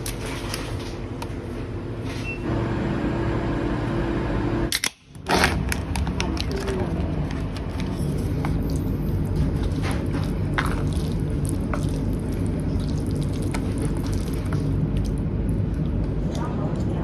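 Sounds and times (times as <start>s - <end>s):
steady low hum: 0.0s - 17.0s
chopsticks squishing wet noodles: 6.3s - 16.5s.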